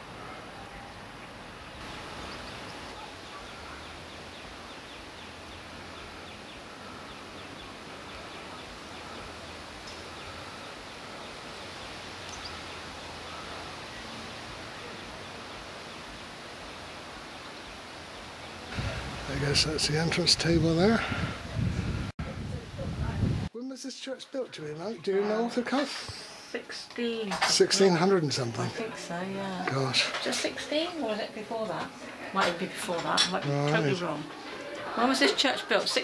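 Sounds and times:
wind in trees: 0:00.0 - 0:23.7
faint bird chirps: 0:00.2 - 0:16.3.

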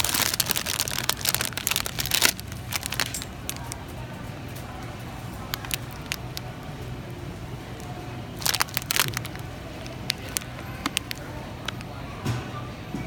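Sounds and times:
cellophane bag crinkling: 0:00.0 - 0:03.9, 0:05.3 - 0:06.6, 0:07.8 - 0:11.8.

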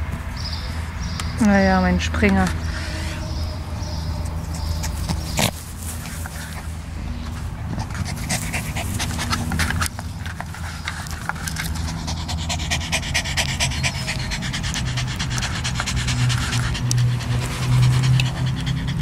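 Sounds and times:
dog panting fast: 0:07.7 - 0:19.0.

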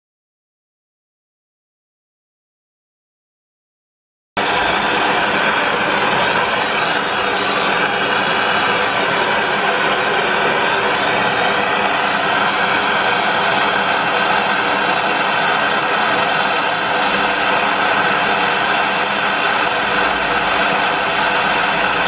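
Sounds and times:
gas blowtorch roaring: 0:04.4 - 0:22.0.

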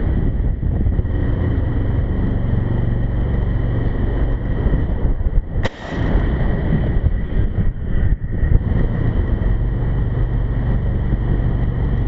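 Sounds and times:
heavy wind rumble on microphone: 0:00.0 - 0:12.0
sharp click: 0:05.6 - 0:06.5.

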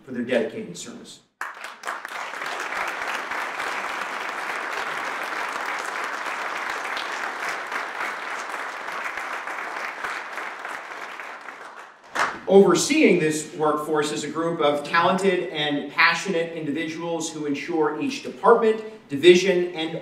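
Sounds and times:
audience applauding: 0:01.4 - 0:12.5.

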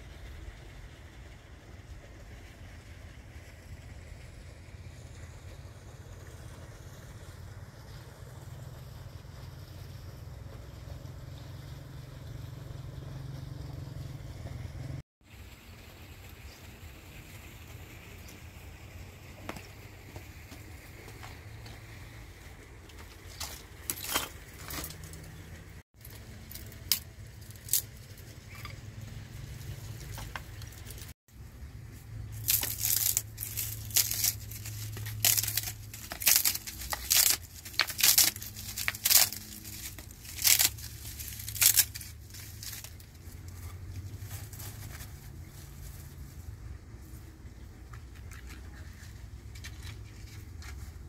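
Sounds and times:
twigs crackling and snapping: 0:22.9 - 0:25.4, 0:26.0 - 0:28.8, 0:29.8 - 0:31.1, 0:32.2 - 0:46.1.

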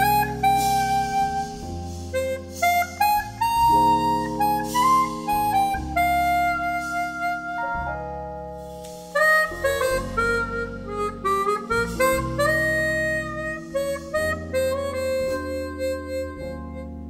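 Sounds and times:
electric piano chords: 0:00.0 - 0:17.0
harmonica melody: 0:00.0 - 0:17.0
plucked double bass: 0:09.1 - 0:17.0.

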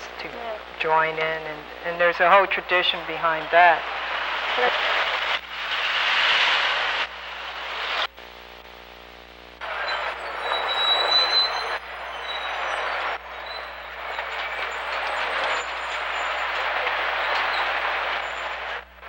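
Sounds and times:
faint hum: 0:00.0 - 0:19.0
city street traffic: 0:09.6 - 0:19.0.

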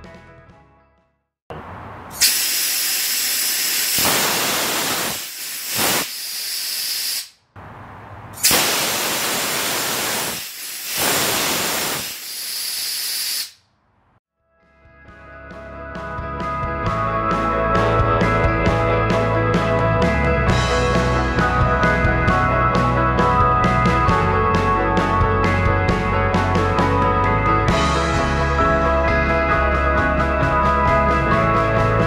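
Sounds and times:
gas thruster hissing: 0:02.1 - 0:07.4, 0:08.4 - 0:13.6.

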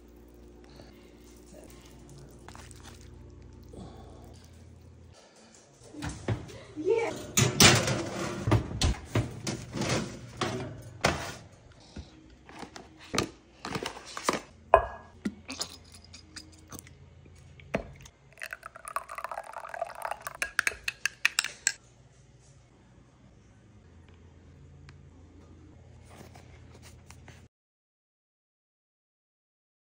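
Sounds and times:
metal baking tray clattering: 0:07.1 - 0:11.4
containers and utensils knocking: 0:17.8 - 0:21.8
sauce pouring into bowl: 0:18.0 - 0:21.7.

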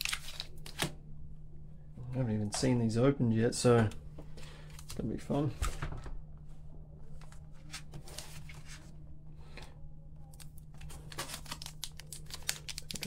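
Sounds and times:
card pack wrapper rustling: 0:00.0 - 0:00.9, 0:10.3 - 0:13.0
low steady hum: 0:00.0 - 0:13.0.

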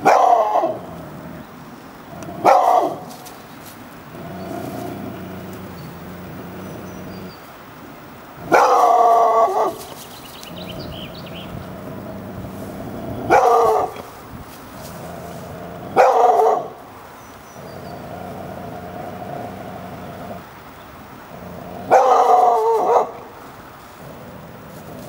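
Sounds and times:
dog barking: 0:00.0 - 0:00.8, 0:02.4 - 0:03.1, 0:08.4 - 0:09.9, 0:13.2 - 0:14.1, 0:16.0 - 0:16.8, 0:21.9 - 0:23.3.

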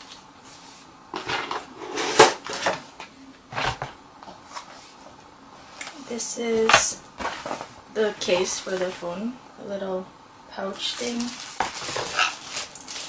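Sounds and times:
cardboard packaging rustling: 0:10.9 - 0:13.0.

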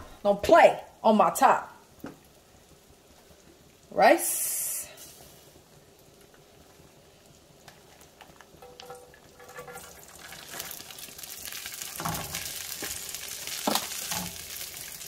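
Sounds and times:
rice sizzling in hot oil: 0:01.8 - 0:15.0
rice clump thumping into pan: 0:13.6 - 0:14.5.

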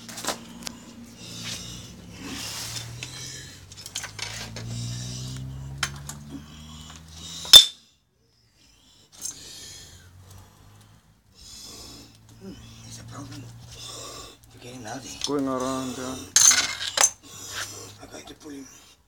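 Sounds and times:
rustling: 0:00.0 - 0:07.2
metallic clinking and clicking: 0:03.0 - 0:04.7, 0:07.4 - 0:07.8.

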